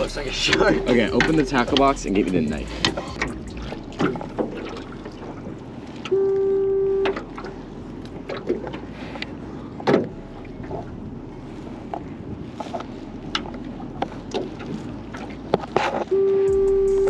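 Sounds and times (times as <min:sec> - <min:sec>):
wind and water wash: 0:00.0 - 0:16.9
single-pitched beep: 0:06.1 - 0:07.2, 0:16.1 - 0:17.0.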